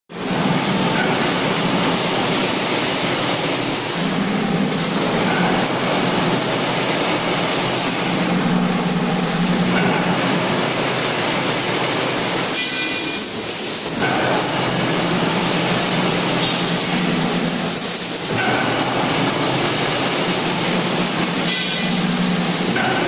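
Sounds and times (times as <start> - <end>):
machinery clatter and rumble: 0.1 - 23.0.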